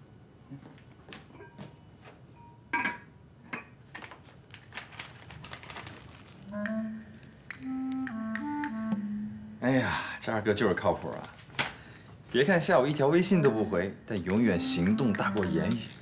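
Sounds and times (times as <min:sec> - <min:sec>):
paper packets rustling: 0:04.0 - 0:07.4
background music with held notes: 0:06.4 - 0:10.0, 0:12.8 - 0:16.0.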